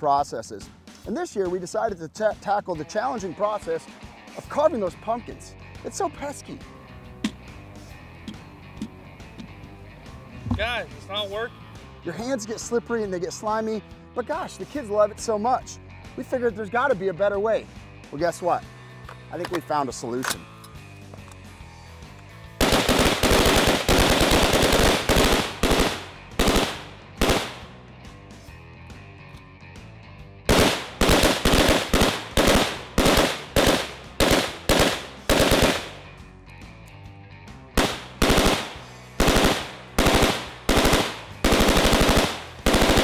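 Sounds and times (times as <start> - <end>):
rifles firing: 22.6 - 27.7, 30.5 - 36.0, 37.8 - 43.0.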